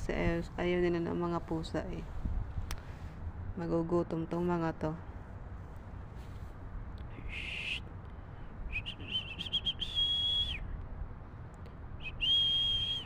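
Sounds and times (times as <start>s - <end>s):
high whistled notes: 8.7s - 10.6s, 12.0s - 13.0s.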